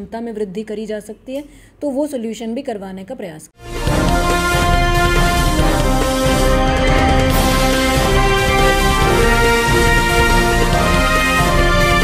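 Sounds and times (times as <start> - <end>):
theme music with long held chords: 3.6 - 12.0.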